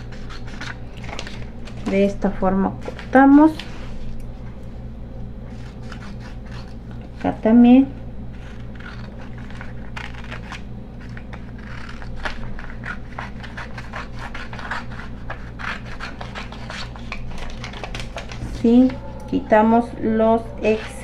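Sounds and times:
paper rustling: 0.0s - 2.2s, 8.4s - 19.0s
scissors snipping paper: 5.5s - 7.4s, 8.4s - 19.0s.

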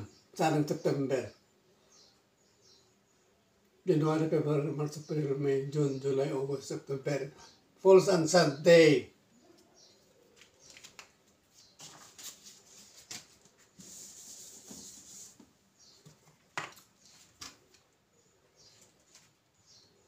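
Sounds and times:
eraser rubbing on whiteboard: 11.9s - 15.5s.

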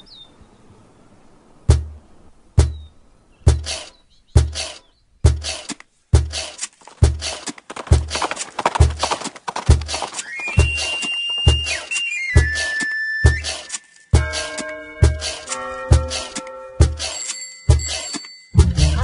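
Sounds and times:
bass drum beating: 1.7s - 2.0s, 2.6s - 2.8s, 3.5s - 3.7s, 18.6s - 19.0s
rustling percussion: 3.5s - 19.0s.

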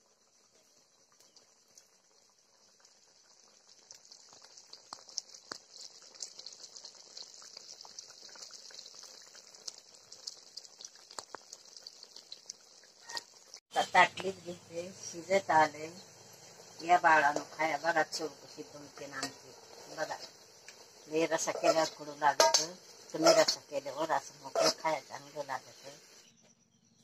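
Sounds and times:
curry boiling with bubbles popping: 0.0s - 26.4s
faint steady hiss: 13.7s - 26.3s.

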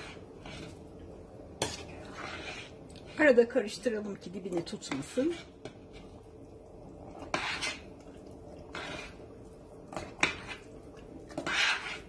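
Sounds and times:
spoon scraping metal pot: 0.0s - 0.9s, 1.6s - 3.4s, 4.6s - 6.2s, 7.0s - 8.0s, 8.6s - 9.3s, 9.9s - 12.0s.

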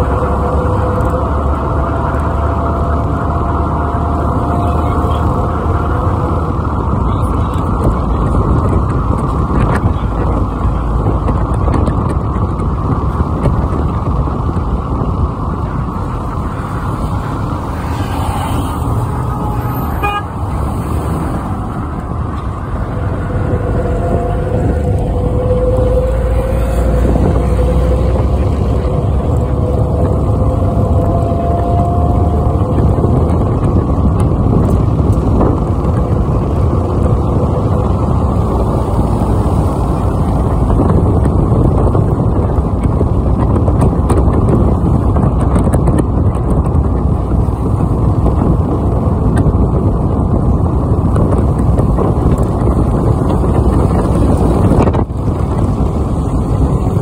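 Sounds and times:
vehicle road and wind noise: 0.0s - 57.0s.

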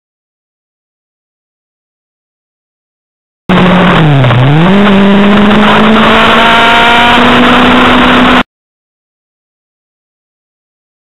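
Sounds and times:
motorcycle engine revving: 3.5s - 8.4s.

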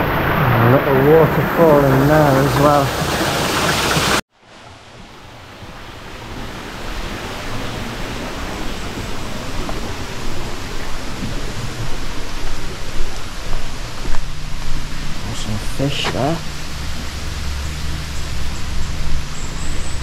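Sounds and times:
stream and waterfall rushing: 0.0s - 20.0s
low rumble: 7.8s - 20.0s.

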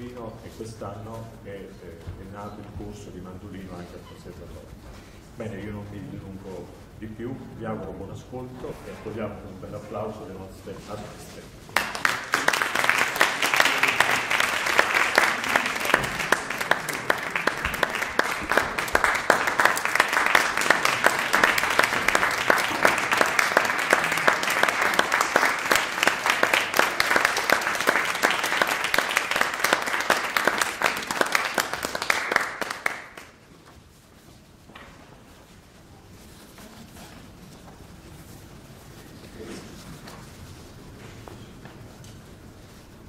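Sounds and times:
audience applauding: 11.7s - 33.4s.

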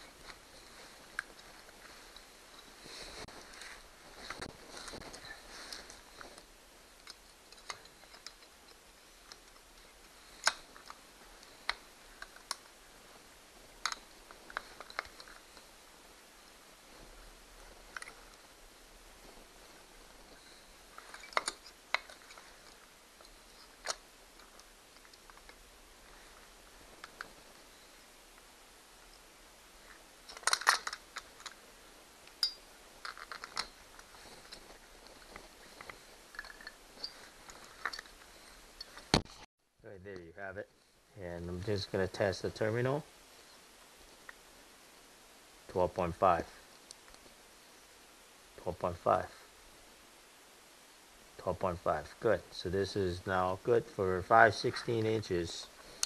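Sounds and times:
metal tools clicking and tapping: 32.3s - 33.8s.

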